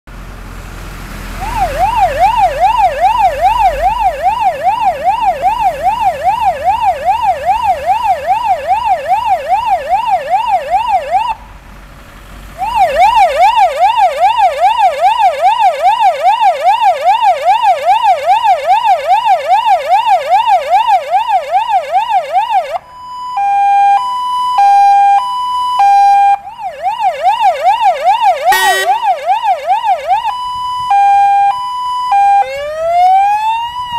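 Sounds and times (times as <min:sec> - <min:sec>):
fire engine siren sweeping: 0:00.5 - 0:11.6, 0:12.3 - 0:33.9
two-tone hi-lo siren: 0:01.4 - 0:11.4, 0:12.6 - 0:33.9
short rising siren blip: 0:28.4 - 0:29.4.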